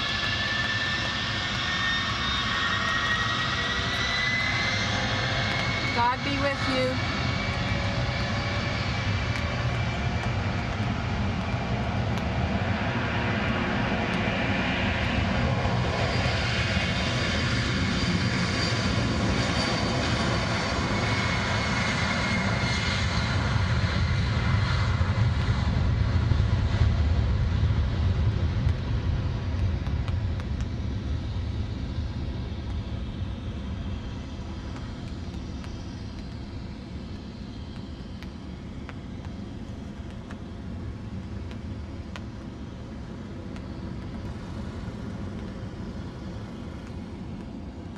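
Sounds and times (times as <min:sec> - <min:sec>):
jet engines roaring at takeoff: 0:00.0 - 0:47.9.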